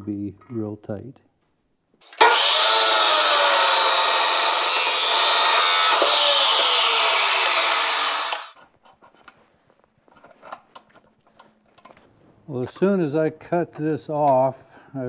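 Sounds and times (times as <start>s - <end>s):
chop saw grinding metal: 2.0s - 8.6s.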